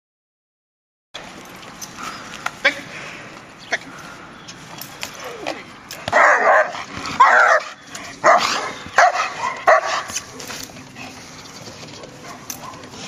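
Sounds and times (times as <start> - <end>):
dog barking: 6.1 - 10.2, 11.9 - 13.0.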